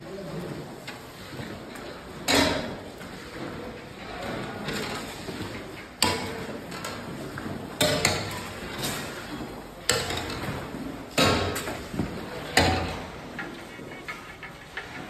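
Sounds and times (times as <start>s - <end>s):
metal utensils clanking on pan: 7.8s - 10.6s, 11.2s - 15.0s.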